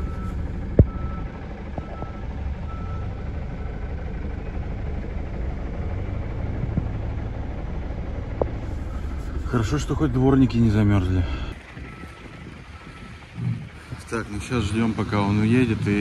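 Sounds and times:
van engine idling: 0.0 - 16.0
windscreen wipers ticking: 11.5 - 16.0.

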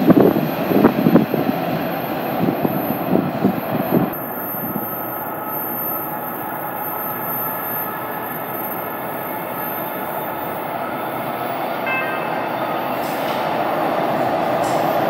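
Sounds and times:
subway train rumbling in tunnel: 0.0 - 15.0
faint high tones: 11.8 - 13.0.

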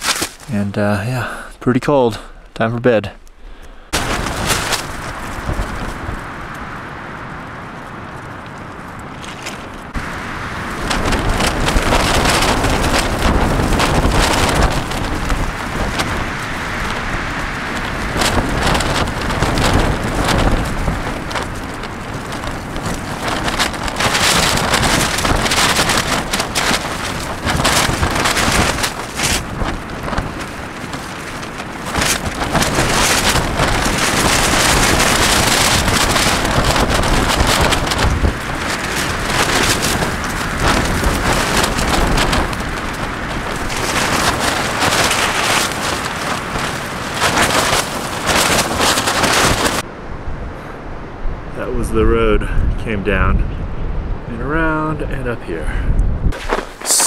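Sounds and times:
tent fabric flapping: 0.0 - 0.7, 3.8 - 49.9, 56.2 - 57.0
strong wind gusting: 0.0 - 57.0
wind rumble on microphone: 2.9 - 57.0.

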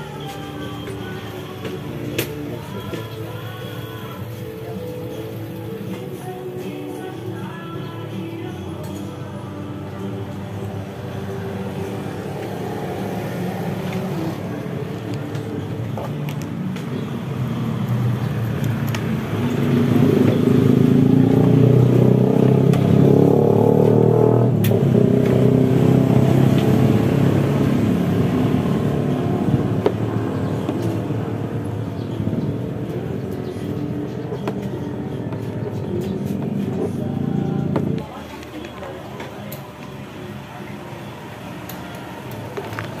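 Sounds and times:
motor vehicle running: 9.9 - 43.0.

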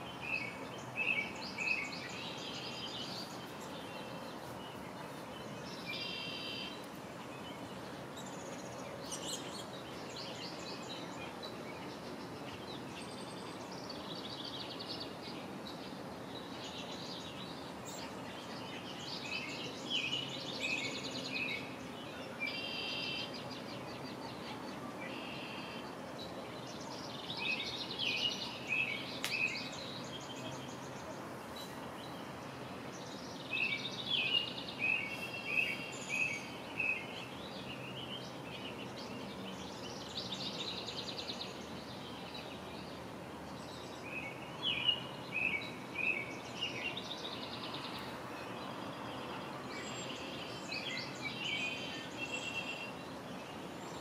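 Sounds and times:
steady low background noise: 0.0 - 54.0.

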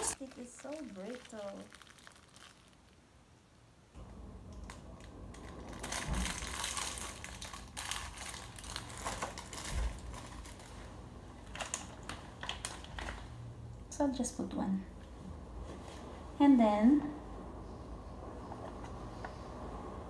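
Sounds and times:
plastic wrapping crinkling: 0.0 - 3.2, 4.6 - 13.4.

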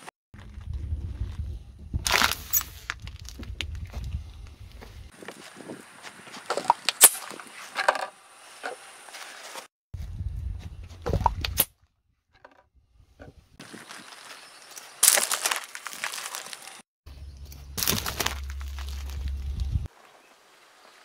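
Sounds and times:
low rumble: 0.4 - 5.1, 10.0 - 11.5, 17.1 - 19.9
plastic bottle cracking under tyre: 2.0 - 3.7, 15.0 - 16.6, 17.8 - 19.4.

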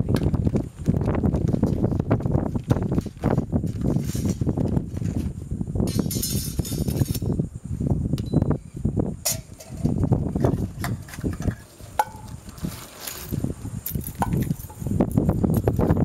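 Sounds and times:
wind buffeting microphone: 0.0 - 16.0
metal pots clinking: 9.3 - 12.4.

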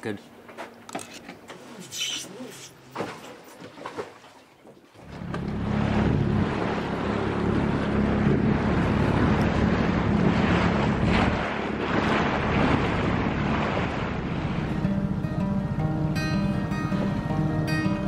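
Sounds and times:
outboard motor droning: 1.3 - 18.0
wind buffeting microphone: 5.2 - 15.3.

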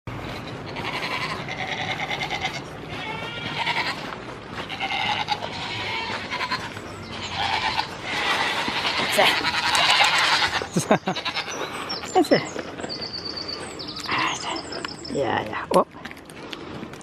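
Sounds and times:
goats bleating: 0.2 - 12.1.

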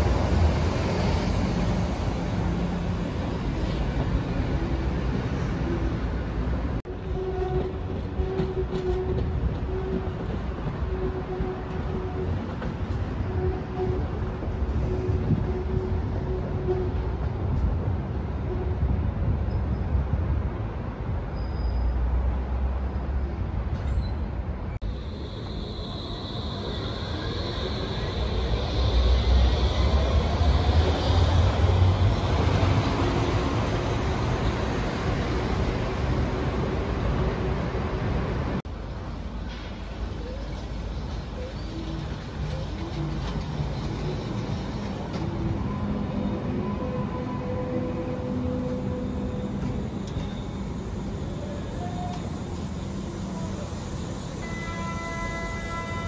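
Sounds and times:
train approaching: 0.0 - 56.0
train rumbling: 0.0 - 56.0
wavering train tone: 24.8 - 38.3, 40.2 - 56.0.

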